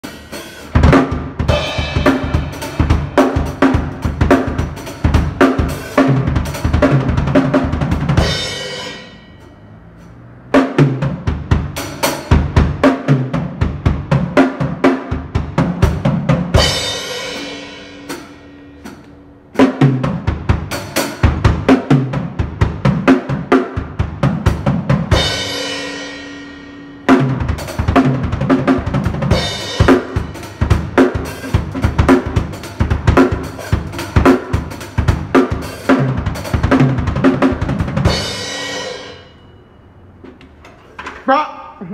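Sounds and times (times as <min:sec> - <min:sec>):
drum kit fast rolls: 0:00.0 - 0:09.7, 0:10.3 - 0:19.0, 0:19.6 - 0:26.3, 0:27.0 - 0:39.3
cymbals ringing: 0:08.2 - 0:10.7, 0:38.1 - 0:40.2.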